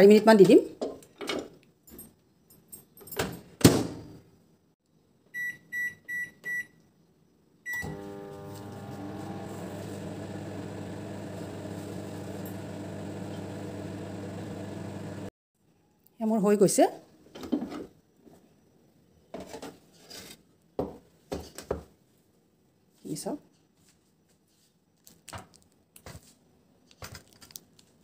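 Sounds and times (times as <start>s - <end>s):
microwave keypad beeps: 5.4s - 6.7s, 7.7s - 8.0s
microwave oven humming: 7.7s - 15.3s.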